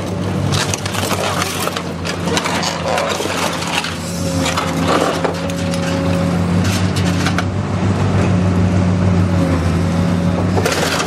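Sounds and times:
metal crunching and snapping: 0.0 - 7.5
machine engine hum: 0.0 - 11.0.

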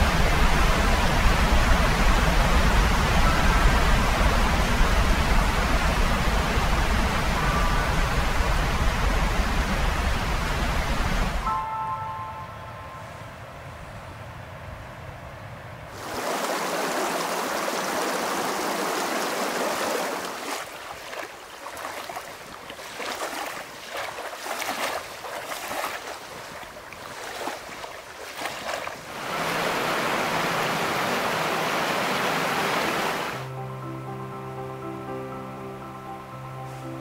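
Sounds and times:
soft music with held notes: 11.4 - 13.3, 33.4 - 37.0
small waves lapping on gravel: 16.0 - 31.2
steady rushing noise: 29.0 - 33.5.

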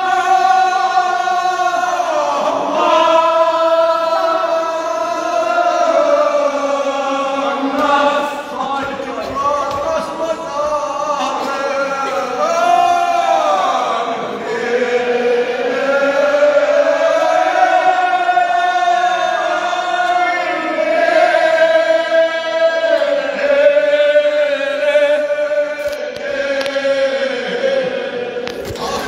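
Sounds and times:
man chanting a lament: 0.0 - 15.5.

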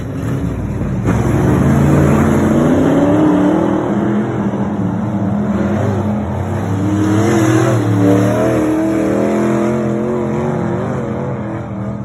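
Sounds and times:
race car engines: 0.0 - 12.0.

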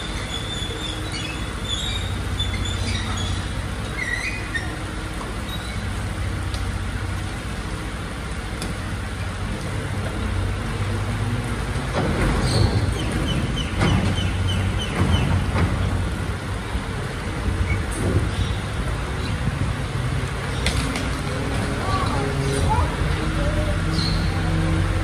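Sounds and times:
short high squeaks: 0.0 - 6.0
garbage truck engine hum: 0.0 - 25.0.

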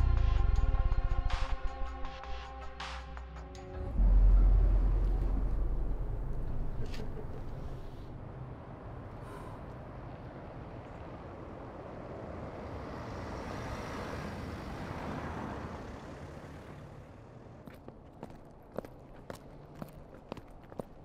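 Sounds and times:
low traffic rumble: 3.6 - 21.0
vehicle passing by: 4.0 - 17.9.

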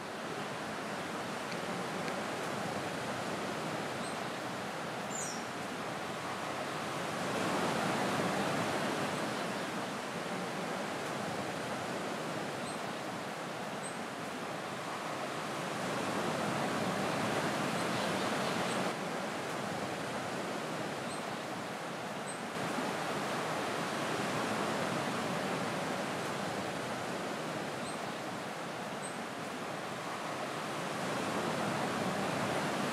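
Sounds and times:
surf rushing: 22.6 - 32.9.

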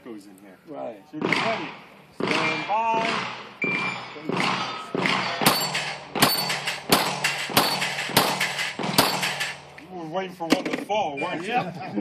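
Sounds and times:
pistol shots hitting steel targets: 1.2 - 9.8.

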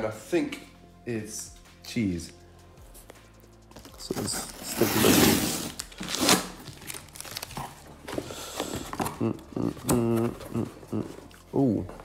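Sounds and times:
packing tape ripping off box: 4.0 - 10.6.

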